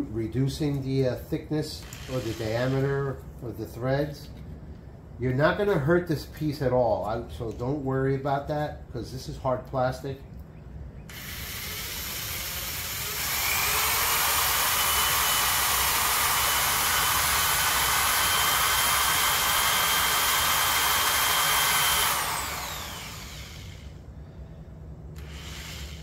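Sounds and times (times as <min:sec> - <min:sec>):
power drill motor whine: 0:01.8 - 0:02.9, 0:11.1 - 0:24.0, 0:25.2 - 0:26.0.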